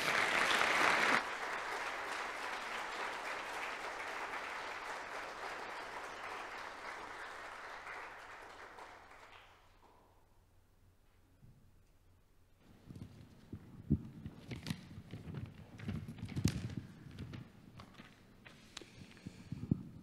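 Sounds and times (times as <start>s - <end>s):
congregation applauding: 0.0s - 10.2s.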